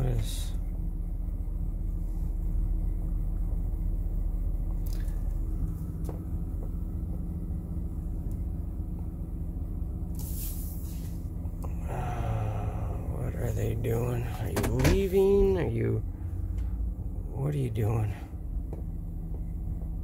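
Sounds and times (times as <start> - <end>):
van engine idling: 0.0 - 20.0
brief hiss: 10.1 - 11.2.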